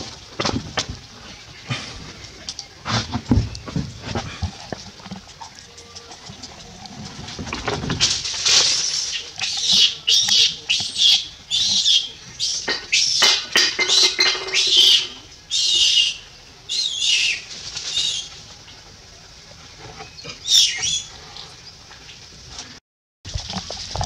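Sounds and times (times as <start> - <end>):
macaques squealing: 8.7 - 18.3, 20.4 - 21.1.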